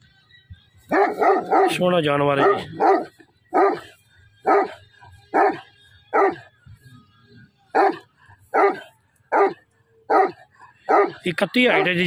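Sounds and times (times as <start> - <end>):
dog barking loudly: 0.9 - 3.9, 4.5 - 6.4, 7.7 - 12.0.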